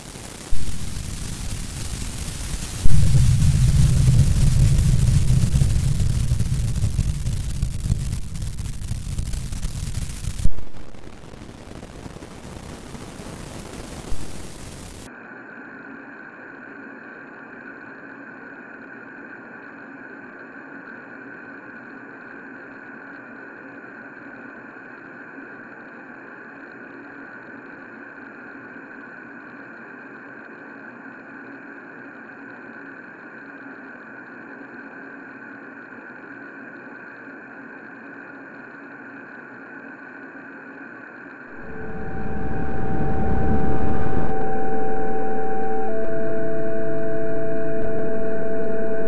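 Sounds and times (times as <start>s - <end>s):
sharp crack: 0.0s - 11.4s
loud static noise: 0.0s - 15.1s, 41.4s - 49.0s
drone of held tones: 0.0s - 18.0s, 41.3s - 49.0s.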